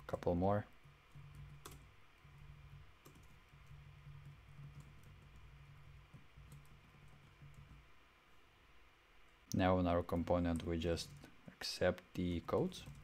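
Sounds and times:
keyboard typing: 0.0s - 8.0s, 10.0s - 11.3s, 11.9s - 13.0s
low steady hum: 0.0s - 13.0s.

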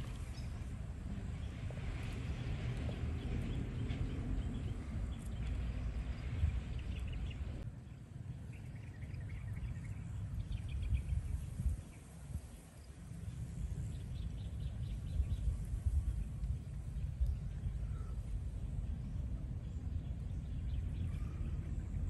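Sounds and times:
steady low rumble: 0.0s - 22.0s
faint bird chirps: 17.2s - 18.4s, 19.7s - 22.0s.

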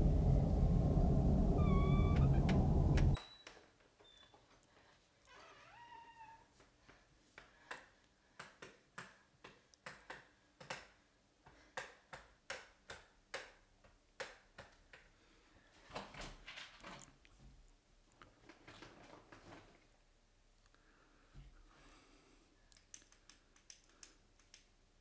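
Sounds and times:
sharp irregular clicks and taps: 22.7s - 24.8s.

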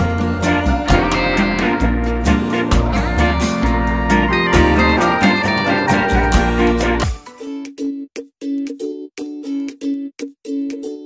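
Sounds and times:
choppy chord music: 0.0s - 7.4s.

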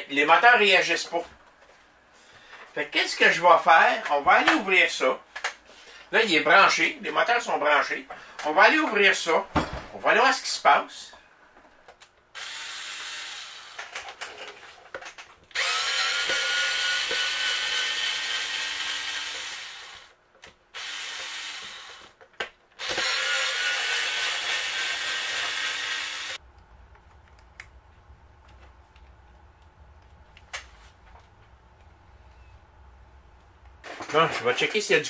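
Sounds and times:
cordless drill motor whining: 12.4s - 14.0s, 15.5s - 20.1s, 20.8s - 22.1s, 22.8s - 26.4s.

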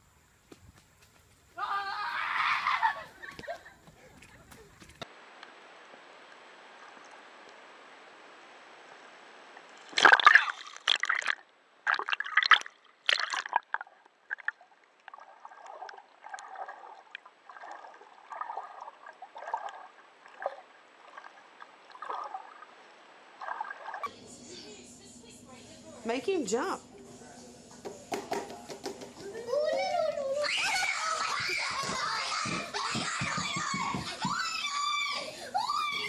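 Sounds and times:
muffled underwater water sloshing: 8.9s - 24.1s.

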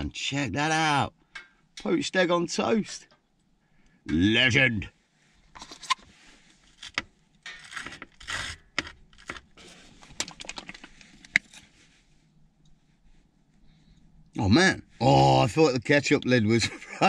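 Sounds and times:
scraping rustles: 7.6s - 12.2s.

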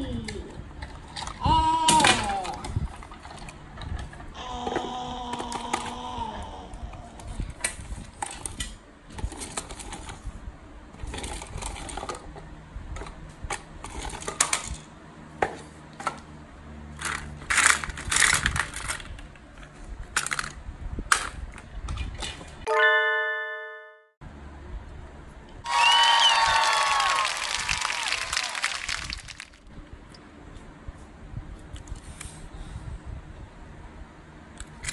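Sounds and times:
toy cars clacking on wood: 17.0s - 21.4s.

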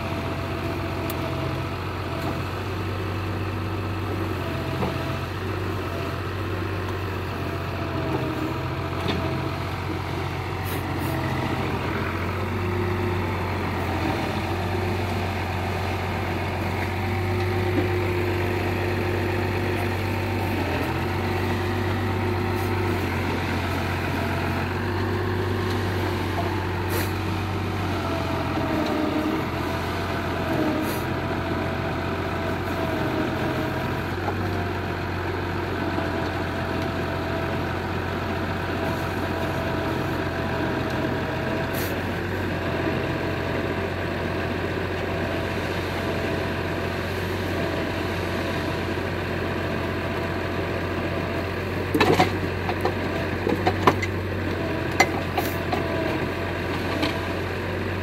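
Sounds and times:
hydraulic crane working: 0.0s - 58.0s
tractor engine running: 0.0s - 58.0s.

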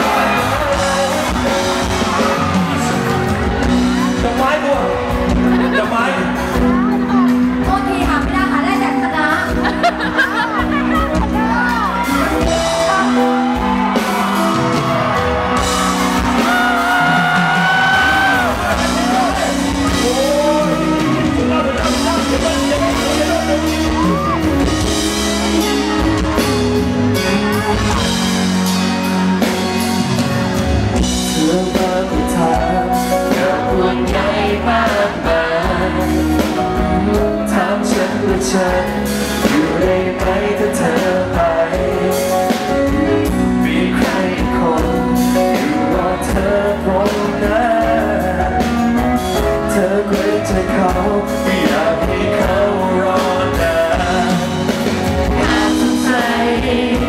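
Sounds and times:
man singing: 0.0s - 6.6s, 16.3s - 28.7s, 31.1s - 57.0s
bass: 0.0s - 57.0s
steady drum beat: 0.0s - 57.0s.

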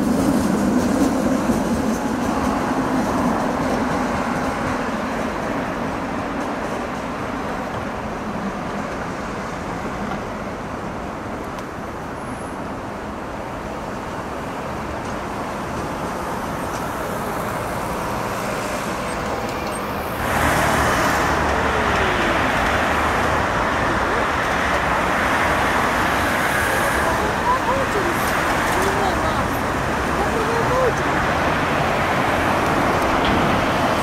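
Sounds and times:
trolleybus passing: 0.0s - 34.0s
cars passing: 12.7s - 34.0s.

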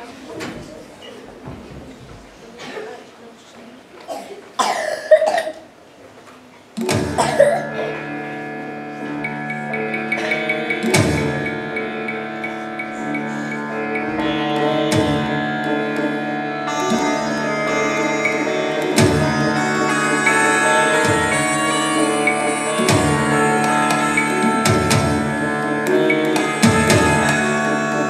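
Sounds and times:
plucked sitar-like strings: 6.8s - 28.0s
indian-style dance music: 6.9s - 28.0s
deep drum beat: 10.0s - 11.6s.

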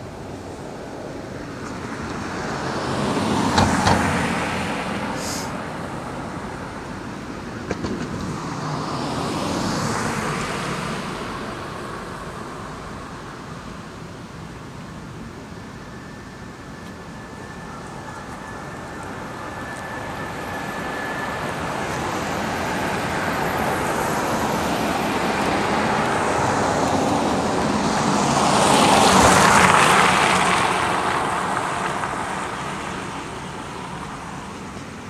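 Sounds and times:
motor vehicle passing by: 17.7s - 34.6s.

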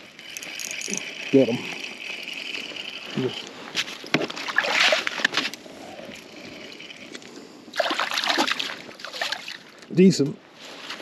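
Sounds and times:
water splashing in a hole: 4.2s - 5.3s, 7.7s - 9.6s.

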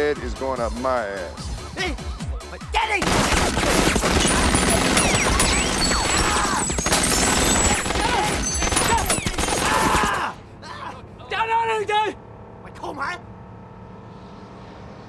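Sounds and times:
rapid gunfire: 3.0s - 10.2s.

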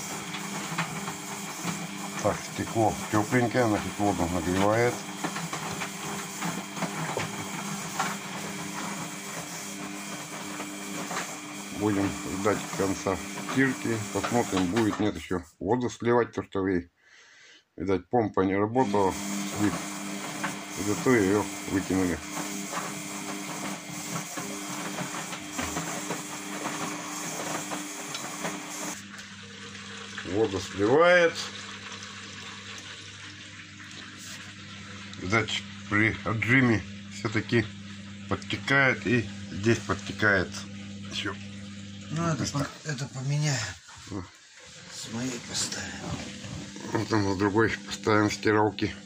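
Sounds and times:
washing machine motor hum: 0.0s - 15.2s, 18.8s - 49.0s
water hissing: 42.2s - 47.5s.

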